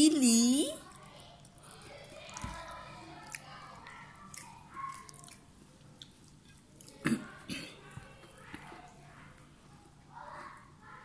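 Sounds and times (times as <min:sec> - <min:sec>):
person chewing food: 0:00.8 - 0:09.5.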